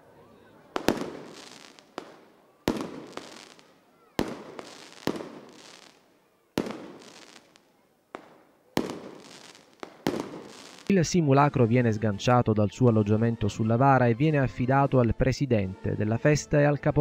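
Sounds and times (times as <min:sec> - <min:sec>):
fireworks bursting with echo: 0:00.7 - 0:11.1.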